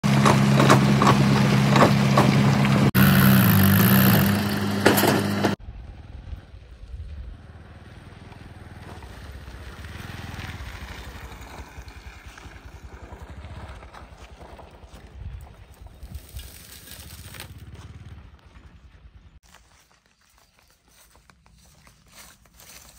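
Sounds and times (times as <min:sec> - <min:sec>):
motorcycle engine at low revs: 0:00.0 - 0:14.7, 0:16.4 - 0:19.4
loud held tones: 0:03.0 - 0:05.2.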